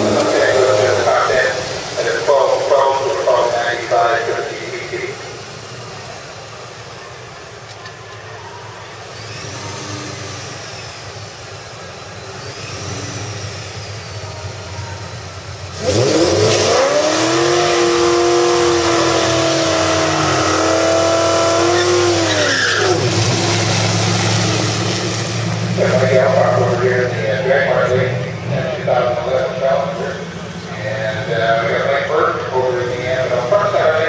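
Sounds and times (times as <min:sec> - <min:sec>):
car engine idling and revving: 0:00.0 - 0:34.0
tyres squealing in burnout: 0:12.2 - 0:27.0.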